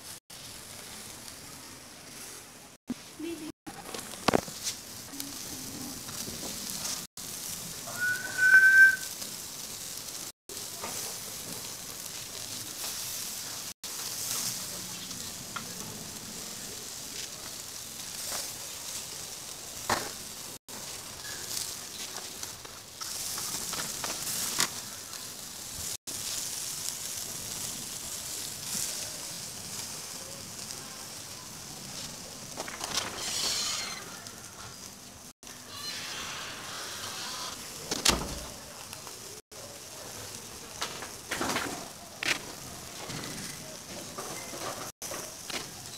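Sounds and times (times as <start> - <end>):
chicken sizzling on charcoal grill: 0.0 - 45.9
short high chirp: 7.9 - 9.1.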